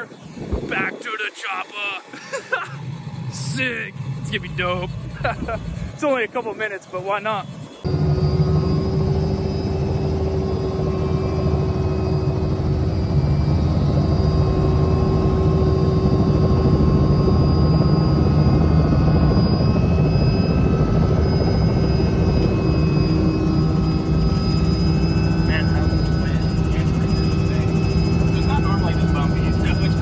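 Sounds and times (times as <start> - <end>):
high whine: 0.0 - 30.0
helicopter rotor thrum: 2.0 - 6.0, 7.6 - 30.0.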